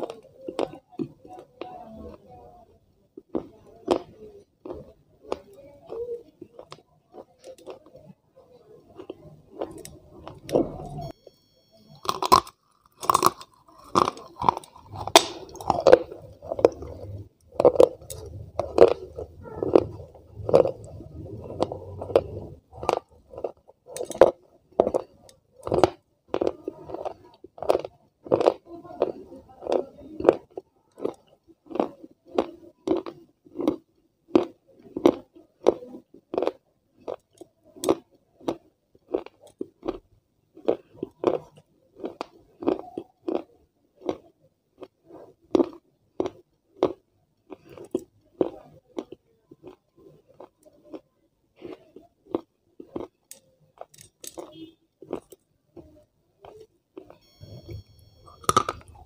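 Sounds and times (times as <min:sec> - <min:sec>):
crunchy chewing: 0:08.8 - 0:11.2, 0:11.9 - 0:59.0
crisp bites: 0:12.0 - 0:16.8, 0:58.3 - 0:59.0.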